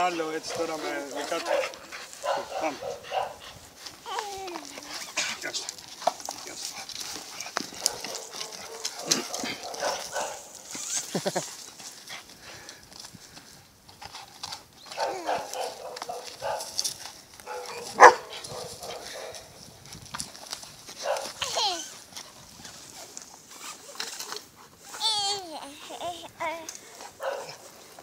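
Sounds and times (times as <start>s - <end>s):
dog growling: 4.5s - 10.6s.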